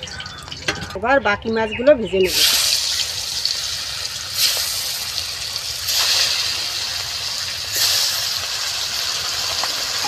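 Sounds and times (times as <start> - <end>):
fish sizzling in hot oil: 2.2 - 10.0.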